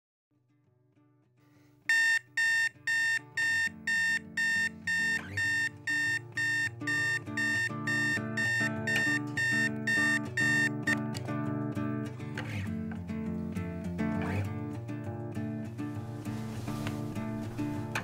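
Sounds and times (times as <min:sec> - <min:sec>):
alarm clock beeping: 0:01.9 - 0:11.0
soft music: 0:02.1 - 0:18.0.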